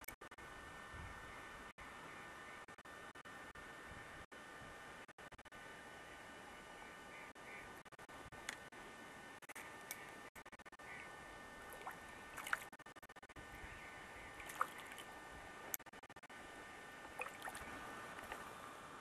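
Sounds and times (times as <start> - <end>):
small water splashes and drips: 11.7 - 12.7, 14.4 - 15.1, 17.2 - 18.5.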